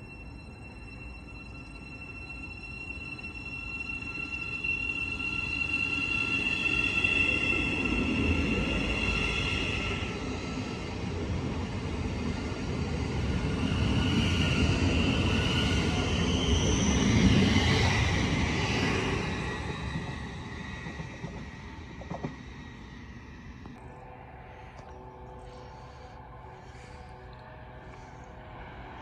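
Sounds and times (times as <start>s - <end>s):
high squeal: 0.0s - 10.9s, 13.4s - 21.6s
train wheels rumbling on rails: 0.0s - 24.0s.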